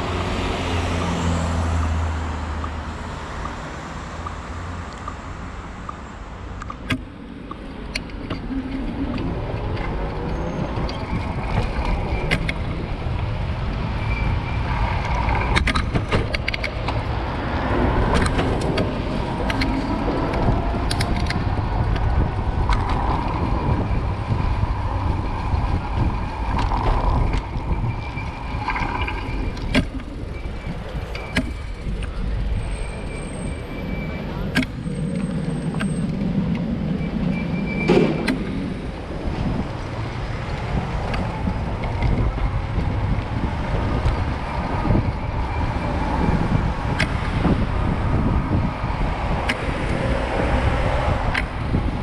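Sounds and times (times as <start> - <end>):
cars passing close by: 0.0 - 52.0
wind rumble on microphone: 6.4 - 52.0
sharp clicks and knocks: 10.8 - 12.8, 15.0 - 17.1, 18.0 - 23.3, 31.1 - 32.1.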